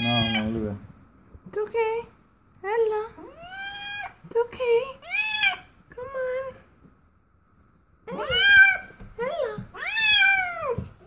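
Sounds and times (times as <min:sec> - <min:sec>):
cat meowing: 0:00.0 - 0:00.6, 0:03.2 - 0:04.2, 0:05.0 - 0:05.7, 0:08.1 - 0:09.0, 0:09.6 - 0:10.8.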